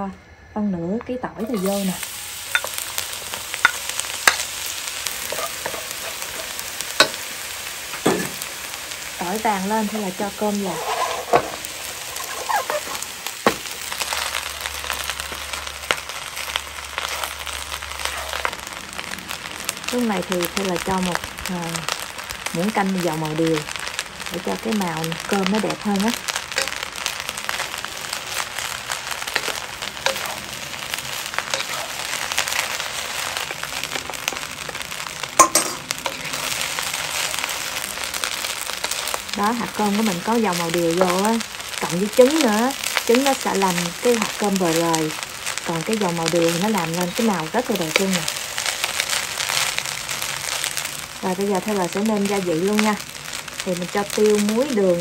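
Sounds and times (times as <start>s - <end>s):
rice sizzling in hot oil: 1.1s - 55.0s
wooden spatula scraping a wok: 5.2s - 7.2s, 10.1s - 14.3s, 17.0s - 18.6s, 25.2s - 41.5s
wooden spatula scraping: 10.4s - 13.1s, 28.3s - 34.9s.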